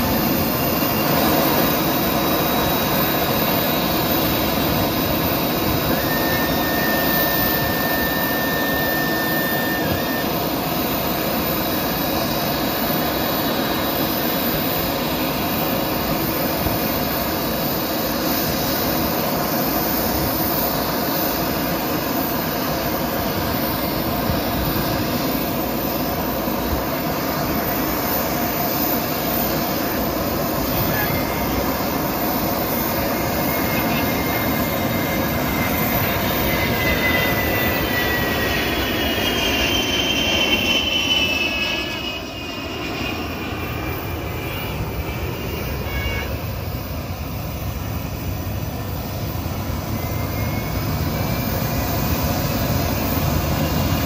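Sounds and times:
jet engine roar with whine: 0.0 - 54.0
whistle sliding in pitch: 5.5 - 10.9, 30.6 - 46.4, 49.8 - 52.0.

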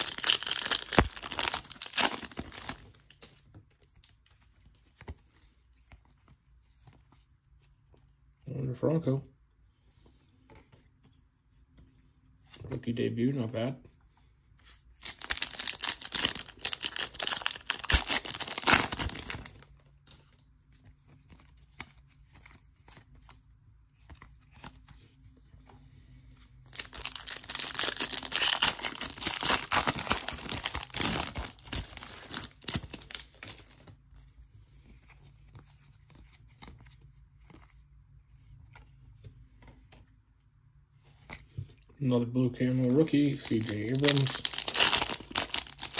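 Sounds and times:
foil wrapper tearing and crinkling: 0.0 - 3.0, 15.0 - 19.6, 26.7 - 33.7, 42.8 - 45.9.

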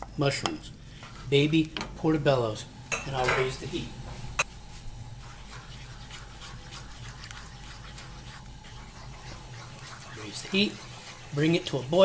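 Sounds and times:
steady low hum: 0.0 - 12.0
sauce simmering with crackles: 3.6 - 12.0.

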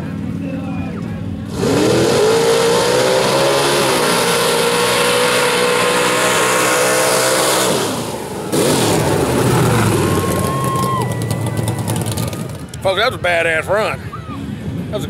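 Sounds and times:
truck engine revving in mud: 1.4 - 12.8.

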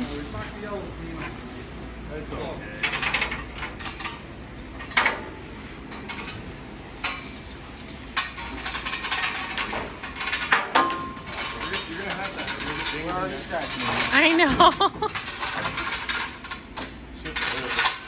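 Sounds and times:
metal chain clinking and rattling: 0.0 - 1.9, 7.1 - 16.6.

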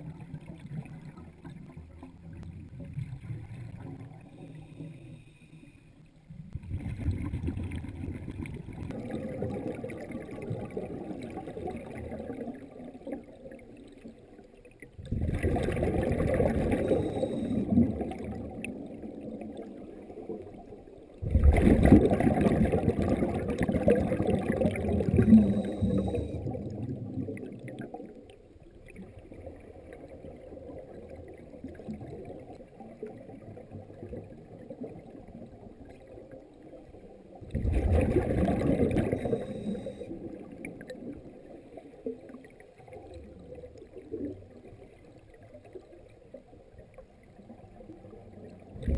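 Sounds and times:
underwater exhaled bubbles: 0.0 - 48.9
underwater murmur: 21.2 - 27.5.

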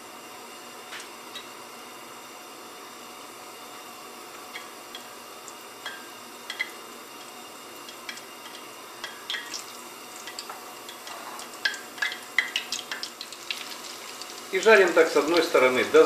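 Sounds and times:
meatballs sizzling in oil: 3.0 - 16.0
oil crackling and popping: 9.2 - 15.5.

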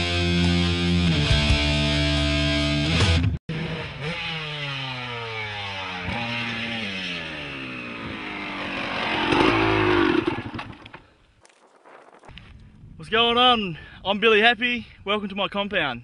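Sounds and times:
dirt bike engine winding down: 3.5 - 11.1.

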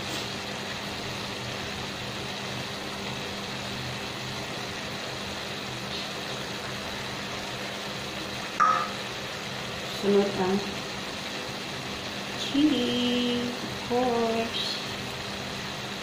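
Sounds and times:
steady machine hum: 6.9 - 16.0.

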